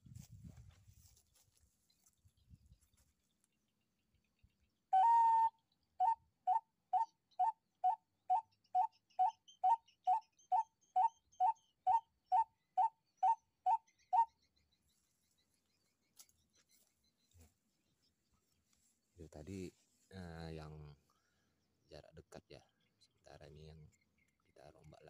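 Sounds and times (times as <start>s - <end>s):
bird call pipe whistling: 4.9s - 14.4s.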